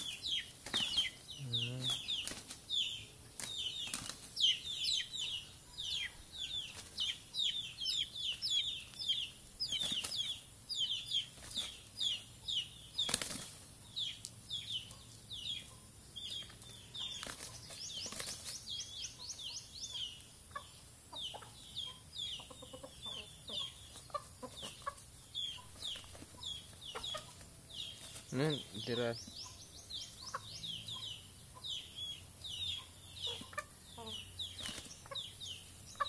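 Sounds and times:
wings flapping: 0.0s - 1.2s, 1.8s - 2.7s, 3.4s - 4.5s, 9.7s - 10.4s, 13.0s - 13.7s, 16.4s - 18.6s, 34.6s - 35.1s
chickens fighting: 0.0s - 36.0s.

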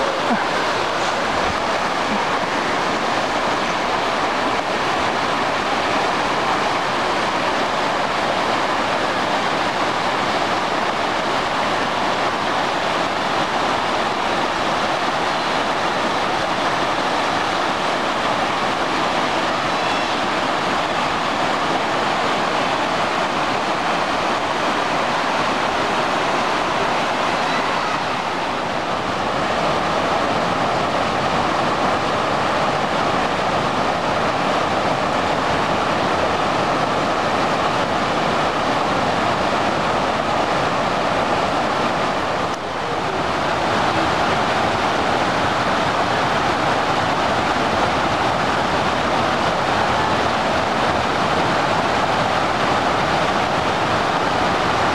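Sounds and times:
floodwater rushing over rocks: 0.0s - 54.9s.

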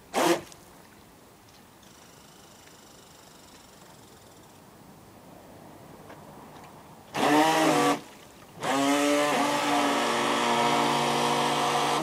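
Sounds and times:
toy boat motor whine: 7.2s - 8.0s, 8.6s - 12.0s.

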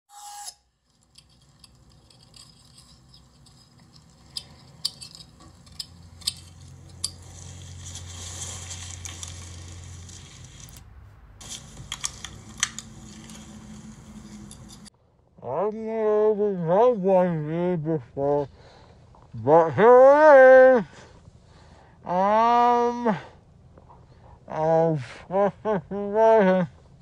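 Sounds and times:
low hum: 0.2s - 24.5s.

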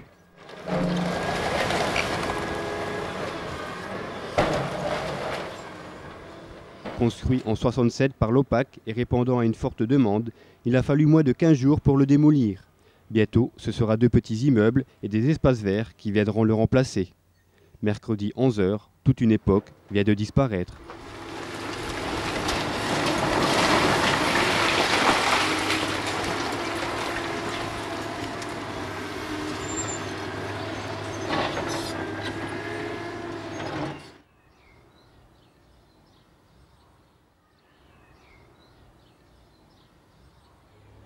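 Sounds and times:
excavator diesel engine running: 0.1s - 7.1s, 20.8s - 34.2s
falling rubble crashing: 0.4s - 7.3s, 20.8s - 32.2s.

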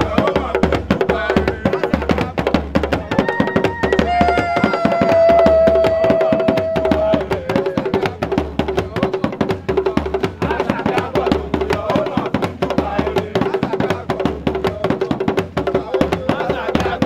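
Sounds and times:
drums beaten fast with sticks: 0.0s - 17.0s
voice holding high note: 3.0s - 7.2s.

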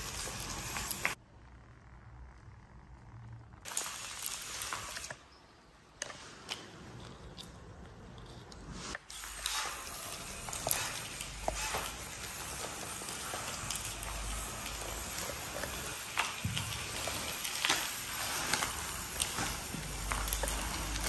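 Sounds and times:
small motor humming: 9.1s - 21.0s.

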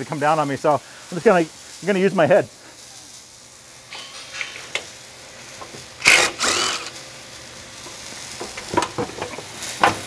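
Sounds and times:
cordless power tool whirring: 6.0s - 7.0s.

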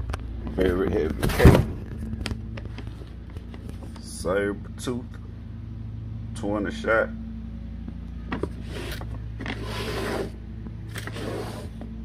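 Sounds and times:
steady low hum: 0.0s - 12.0s
packaging scraping and rubbing: 8.6s - 11.9s.

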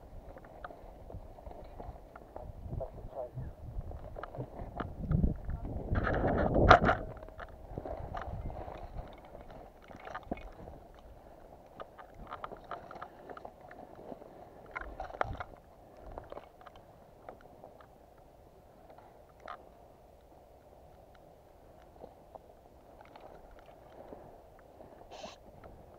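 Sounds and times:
clothing and gear rustling: 0.0s - 3.0s, 3.6s - 25.9s
crunching footsteps: 0.0s - 18.0s.

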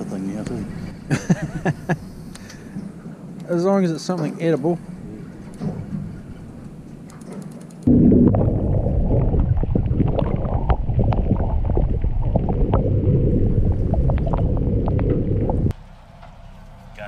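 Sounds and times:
sharp underwater clicks and crackles: 5.4s - 15.7s
low underwater rumble: 7.9s - 15.7s.

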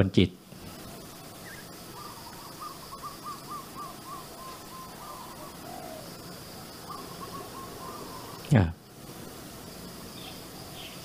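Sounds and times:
bird calling in quick notes: 1.4s - 6.2s, 6.8s - 8.5s.

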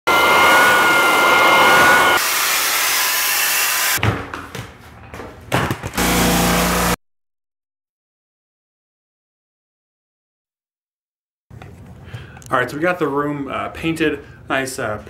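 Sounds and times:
drum floor sander humming: 0.1s - 4.0s, 6.0s - 7.0s
floor sander whining: 0.1s - 4.0s, 6.0s - 7.0s.

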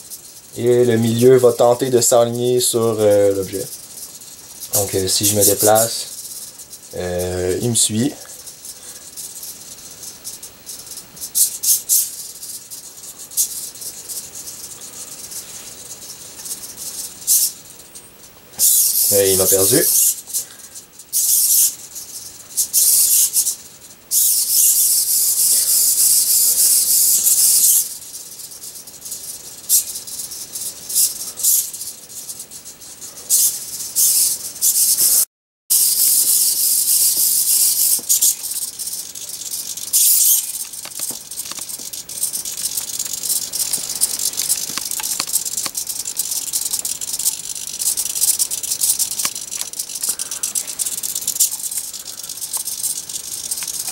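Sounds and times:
rapid ticking: 0.0s - 53.9s
servomotors buzzing: 33.3s - 53.9s.

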